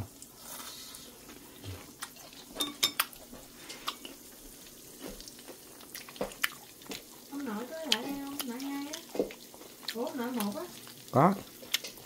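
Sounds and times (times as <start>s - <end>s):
utensils clinking against dishes: 2.6s - 3.1s.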